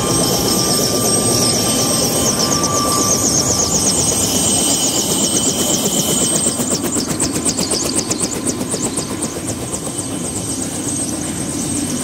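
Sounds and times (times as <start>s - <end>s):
helicopter turbine whine: 0.0s - 12.0s
pulsing rotor beat: 0.0s - 12.0s.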